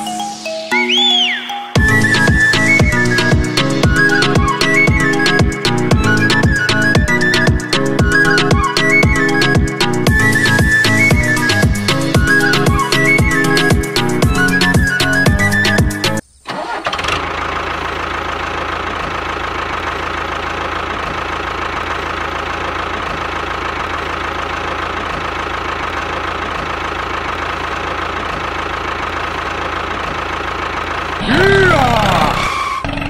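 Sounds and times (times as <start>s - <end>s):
music: 0.0s - 16.2s
tractor engine running: 1.8s - 33.0s.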